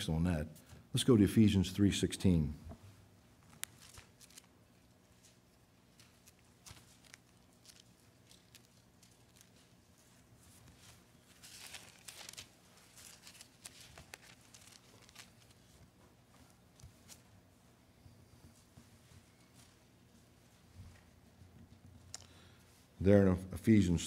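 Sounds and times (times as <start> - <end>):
thin pages being turned: 3.4 - 17.2.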